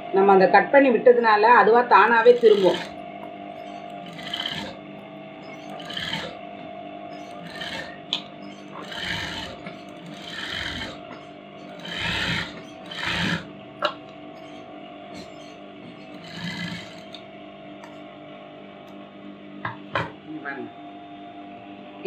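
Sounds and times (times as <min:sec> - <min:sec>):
sewing machine stitching: 0:02.0 - 0:03.0, 0:03.6 - 0:04.8, 0:05.5 - 0:06.4, 0:07.1 - 0:11.0, 0:11.6 - 0:13.5, 0:15.2 - 0:17.2.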